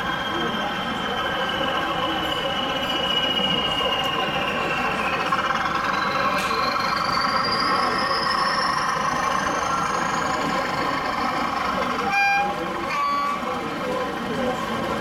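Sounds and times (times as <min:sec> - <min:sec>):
hubbub of exhibition hall: 0:00.0 - 0:15.0
model train horn toot: 0:12.0 - 0:13.5.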